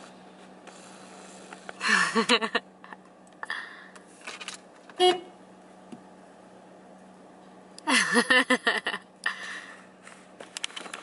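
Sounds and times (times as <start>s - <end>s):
car horn toot: 5.0s - 5.4s.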